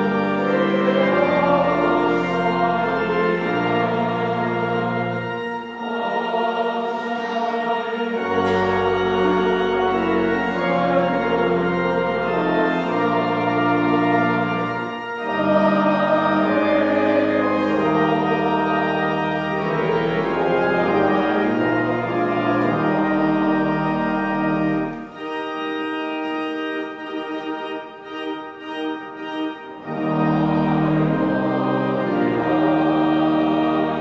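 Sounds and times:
church organ playing chords: 0.0 - 34.0.

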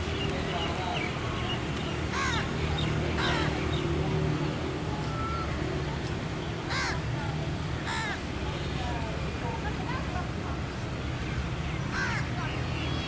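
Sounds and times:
crows cawing: 2.1 - 2.5, 6.7 - 7.0, 7.8 - 8.2, 11.9 - 12.3.

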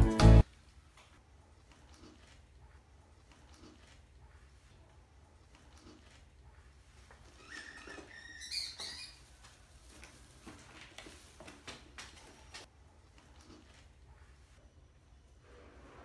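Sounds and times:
mice squeaking: 7.2 - 9.4.

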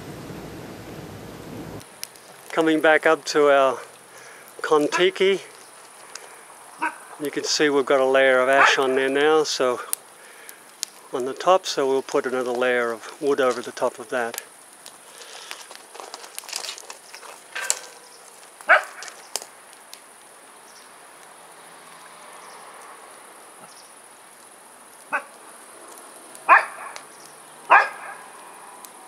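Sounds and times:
wood fire crackling: 0.0 - 29.0
dog barking: 6.8 - 7.0, 8.6 - 9.0, 18.7 - 19.0, 26.5 - 27.0, 27.7 - 28.3.

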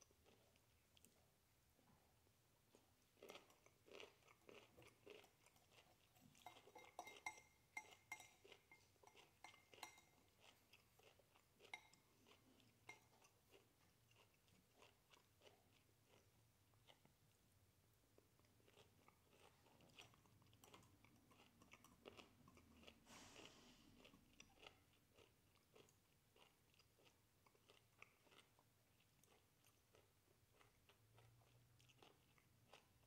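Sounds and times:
chewing and crunching: 0.0 - 1.3, 2.7 - 17.5, 18.1 - 33.0
metal fork clinking on bowl: 6.4 - 10.2.

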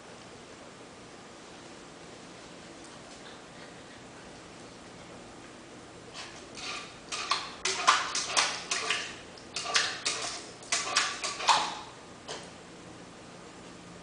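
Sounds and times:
puppy splashing water: 6.1 - 12.0.

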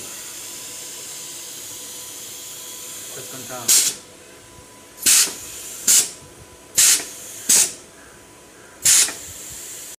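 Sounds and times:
compressed air hissing blasts: 2.3 - 4.0, 5.0 - 7.8, 8.8 - 10.0.

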